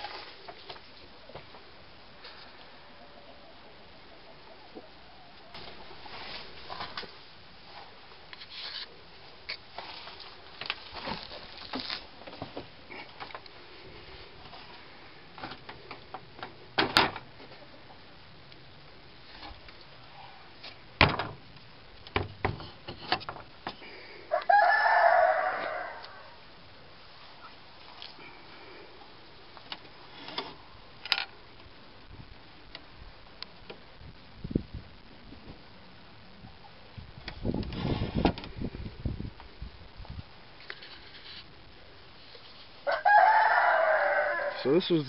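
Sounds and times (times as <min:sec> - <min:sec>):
rooster crowing: 0:24.3 - 0:26.4, 0:42.8 - 0:44.7.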